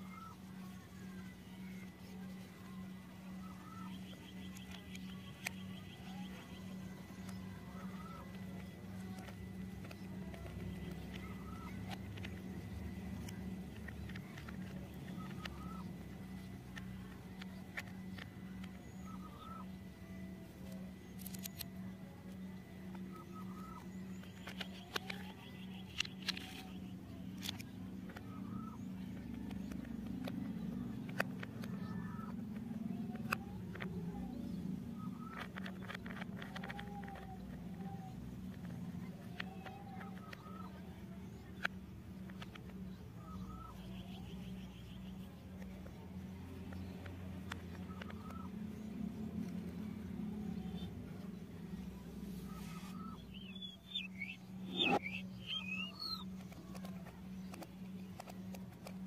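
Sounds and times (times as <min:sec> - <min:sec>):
birds chirping: 0:00.0 - 0:59.0
low steady rumble: 0:00.0 - 0:59.0
steady low hum: 0:00.0 - 0:59.0
plastic toy parts clicking: 0:04.4 - 0:19.4, 0:20.7 - 0:22.4, 0:24.2 - 0:28.4, 0:29.1 - 0:42.8.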